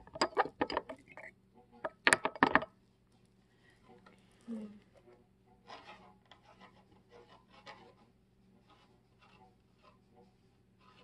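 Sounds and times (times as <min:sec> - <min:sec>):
pen nib scratching paper: 0:05.7 - 0:11.0.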